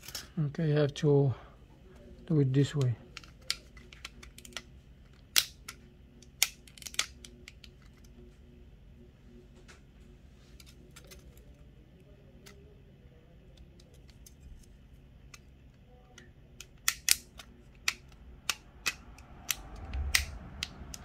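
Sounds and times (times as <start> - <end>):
low steady hum: 0.0 - 21.0
plastic parts clicking: 2.7 - 8.1, 16.1 - 21.0.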